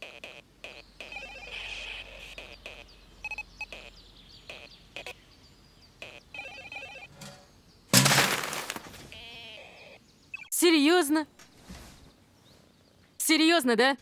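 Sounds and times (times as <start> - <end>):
handheld video game bleeps: 0.0 - 5.1, 6.0 - 7.1
wastebasket crashing over: 7.9 - 9.1.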